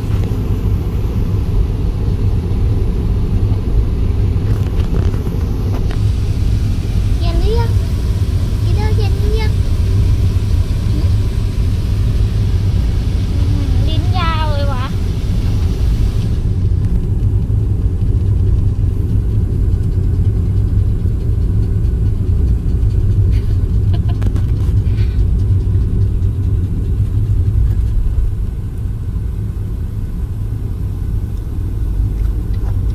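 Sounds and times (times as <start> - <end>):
car rumbling inside cabin: 0.0 - 32.9
small dog panting: 5.3 - 15.8, 16.5 - 29.0.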